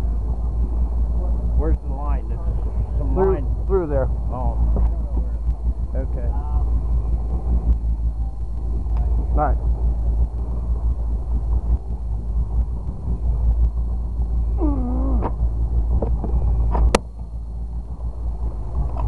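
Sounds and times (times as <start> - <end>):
boat engine rumble: 0.0 - 19.0.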